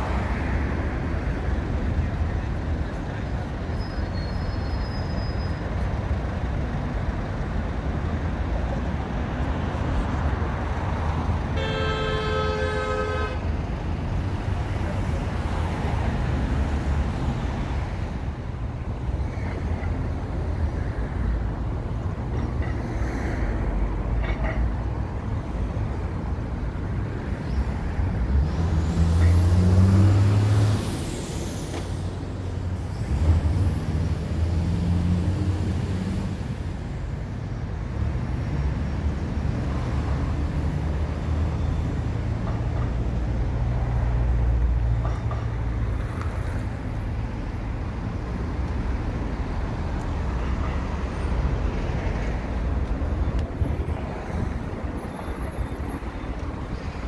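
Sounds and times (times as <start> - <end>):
city traffic rumble: 0.0 - 57.0
car horn toot: 11.6 - 13.4
heavy vehicle engine passing: 28.3 - 36.7.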